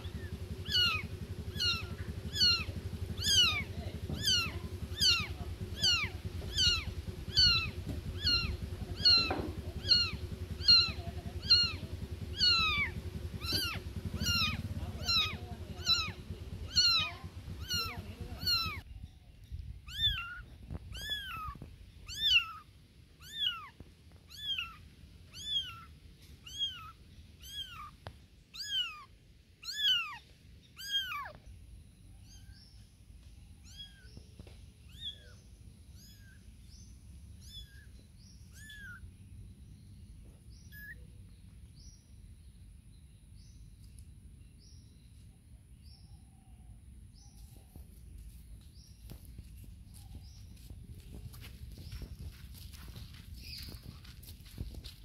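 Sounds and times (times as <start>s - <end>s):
kittens meowing: 0.0s - 18.9s, 19.9s - 31.5s, 32.2s - 32.6s, 33.6s - 36.5s, 37.4s - 39.1s, 40.6s - 41.0s.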